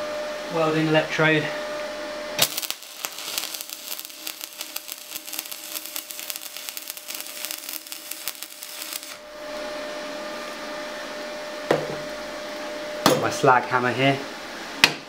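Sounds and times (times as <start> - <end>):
welding arc crackling: 2.4 - 9.3.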